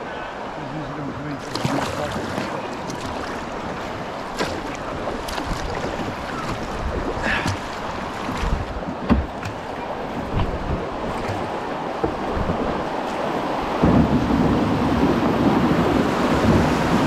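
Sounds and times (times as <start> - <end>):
river water rushing: 0.0 - 17.0
wind on microphone: 2.0 - 17.0
low knocks: 8.3 - 12.8.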